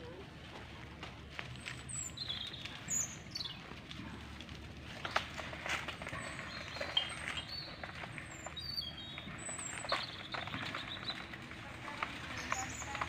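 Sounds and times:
birds chirping: 1.5s - 3.9s, 5.9s - 13.0s.

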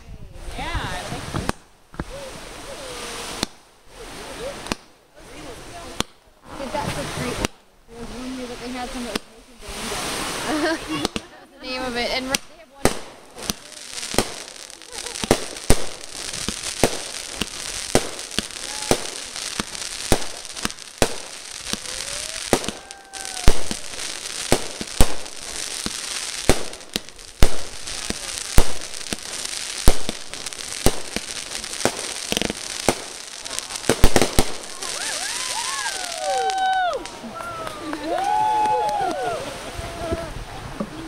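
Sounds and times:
steady hiss: 0.4s - 37.4s
fireworks bangs: 0.4s - 40.9s.

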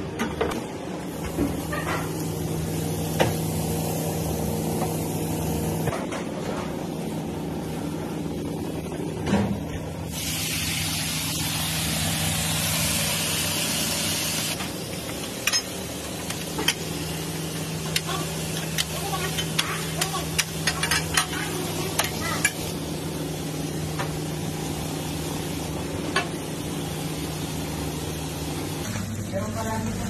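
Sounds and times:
low kitchen hum: 0.0s - 30.0s
hot griddle hissing: 10.1s - 28.9s.

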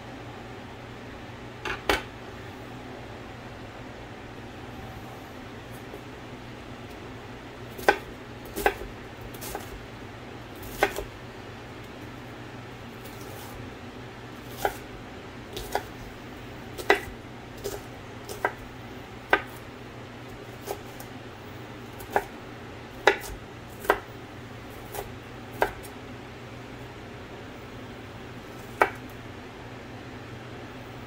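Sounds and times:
fan hum: 0.0s - 31.0s
knife chopping on wooden board: 7.8s - 9.8s, 10.6s - 11.1s, 14.5s - 14.8s, 15.6s - 15.9s, 16.8s - 18.6s, 19.3s - 19.6s, 22.0s - 22.3s, 23.0s - 24.1s, 24.8s - 25.9s, 28.6s - 29.0s.

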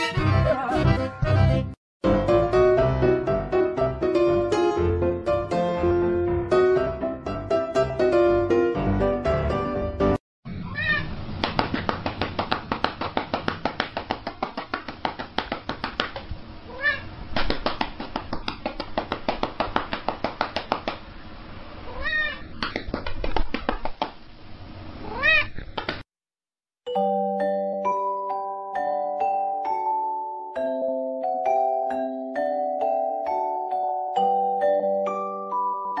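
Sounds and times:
cat meowing: 10.6s - 11.1s, 16.7s - 17.1s, 21.9s - 22.5s, 25.0s - 25.6s.

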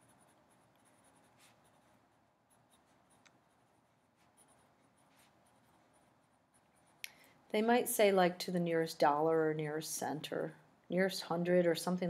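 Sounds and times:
pen scratching on paper: 0.0s - 7.0s.

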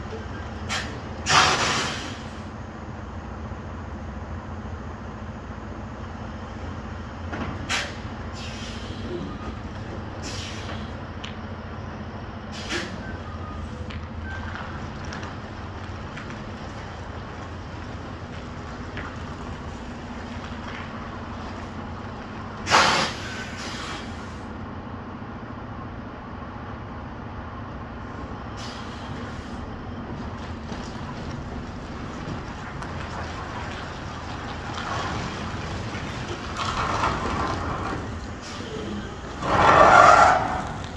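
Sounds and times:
truck engine running: 0.0s - 40.9s
air brake hisses: 0.7s - 2.4s, 7.7s - 9.2s, 10.2s - 11.0s, 12.5s - 13.1s, 22.6s - 24.5s, 28.6s - 29.6s.

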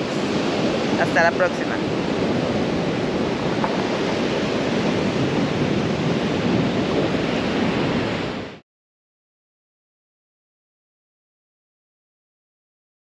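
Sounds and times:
surf breaking on beach: 0.0s - 8.6s
wind on microphone: 0.0s - 8.6s.

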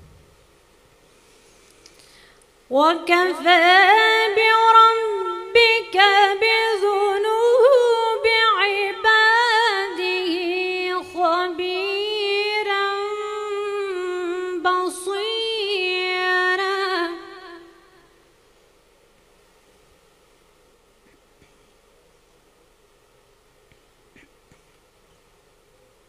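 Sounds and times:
woman breathing: 1.1s - 2.6s
woman reciting melodically: 2.7s - 18.2s.

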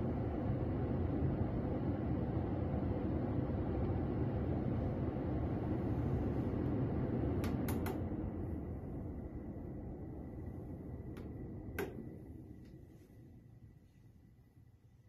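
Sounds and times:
air purifier fan running: 0.0s - 15.0s.

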